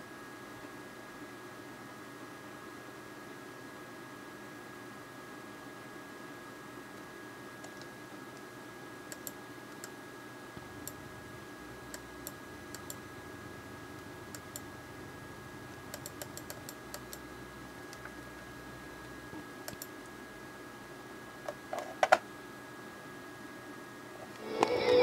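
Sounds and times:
computer mouse clicks: 7.6s - 8.5s, 9.1s - 10.0s, 10.8s - 11.1s, 11.8s - 13.1s, 14.0s - 14.7s, 15.8s - 18.2s, 19.0s - 20.1s
high-pitched whine and hiss: 10.0s - 21.3s, 22.5s - 25.0s.

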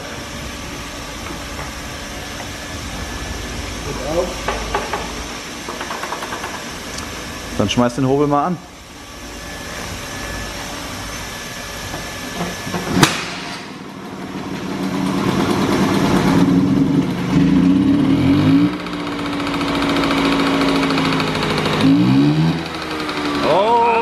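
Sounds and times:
scooter engine revving and idling: 13.6s - 24.0s.

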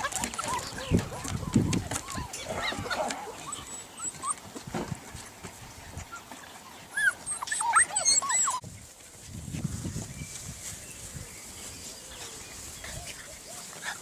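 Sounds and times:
puppies whining and yipping: 0.0s - 4.7s, 5.8s - 8.6s.

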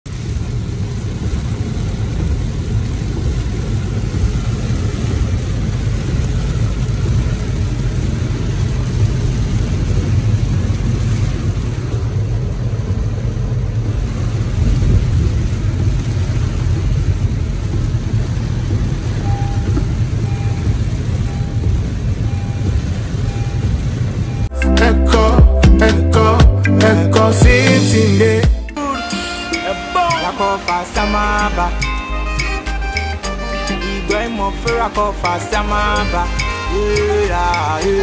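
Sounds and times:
hiss of rain and wet tyres: 0.1s - 26.8s, 28.9s - 38.0s
car interior rumble: 0.1s - 28.8s.

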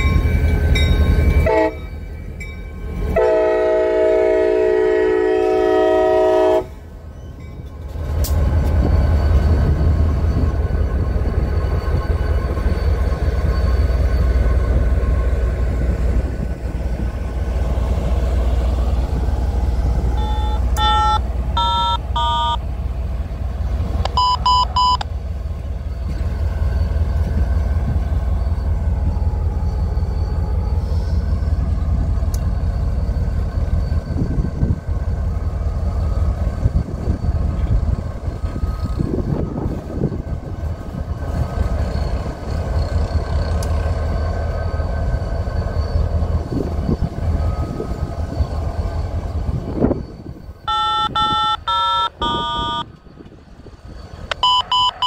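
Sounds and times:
train rumbling past: 0.0s - 55.0s
locomotive horn chord: 1.4s - 1.9s, 3.1s - 6.8s, 50.7s - 52.9s.

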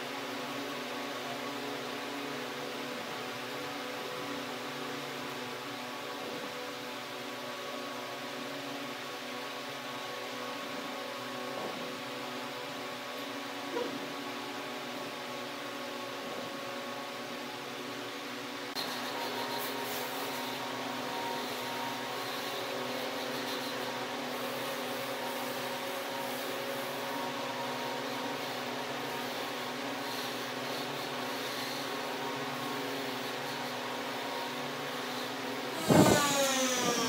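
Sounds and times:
machine hum: 32.6s - 37.0s
loud noise with falling tones: 35.6s - 37.0s.

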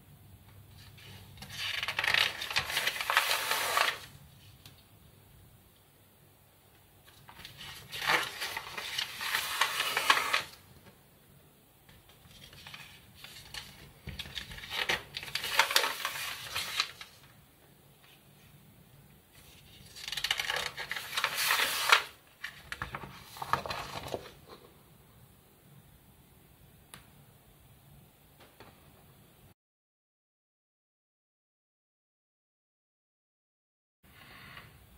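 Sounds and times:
magazine pages rustling: 0.8s - 4.6s, 7.0s - 10.6s, 12.0s - 17.3s, 19.4s - 24.6s.

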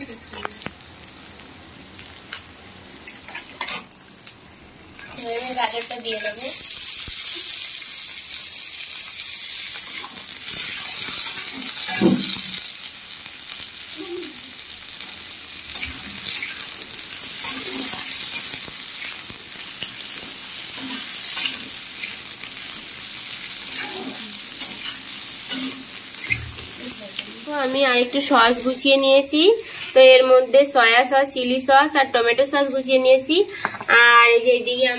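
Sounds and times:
vegetables sizzling in hot oil: 0.0s - 34.9s
metal spatula scraping a pan: 17.3s - 19.2s, 23.6s - 26.7s.

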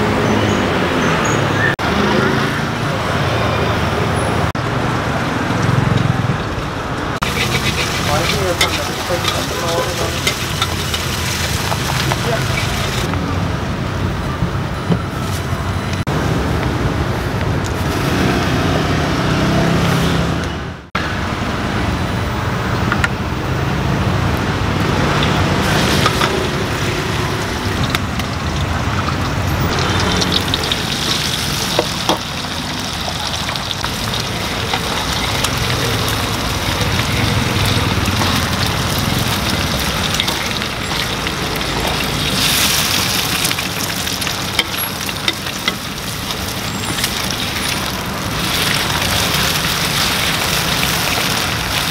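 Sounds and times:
road traffic noise: 0.0s - 51.9s
food sizzling in a frying pan: 7.2s - 13.1s, 25.0s - 51.9s.

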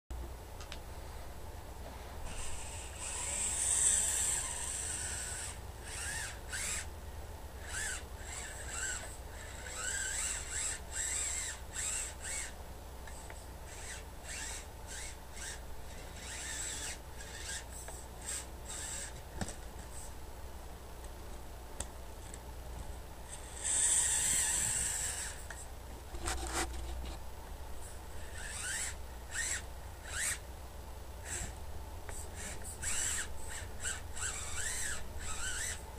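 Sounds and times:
electric motor and gears whining: 2.2s - 6.9s, 7.6s - 19.5s, 23.3s - 27.2s, 27.8s - 30.4s, 31.2s - 35.9s.

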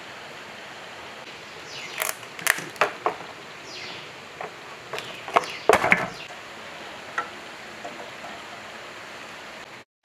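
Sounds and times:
socket wrench scraping: 4.4s - 6.3s.

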